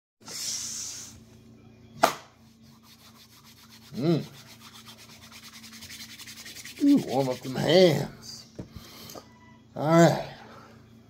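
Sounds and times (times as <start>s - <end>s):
sharp snap: 2.0s - 2.3s
palms rubbing together: 2.6s - 8.1s
man humming: 3.9s - 4.4s.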